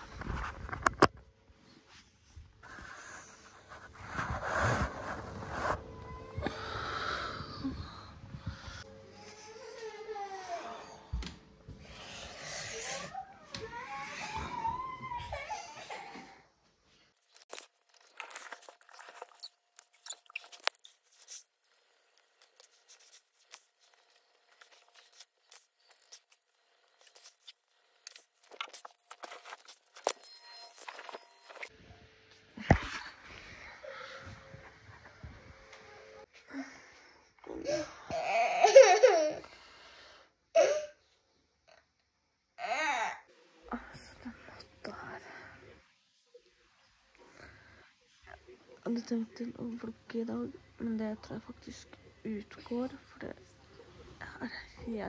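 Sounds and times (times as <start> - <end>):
child breathing heavily: 6.3 - 8.9.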